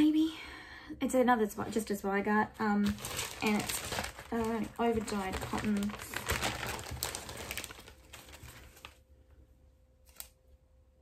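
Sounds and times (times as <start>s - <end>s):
fabric rustling and crinkling: 1.6s - 9.1s.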